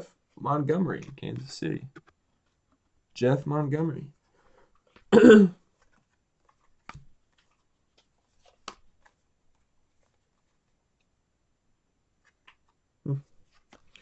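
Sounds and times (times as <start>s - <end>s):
trading cards being handled: 4.2s - 11.1s, 12.2s - 14.0s.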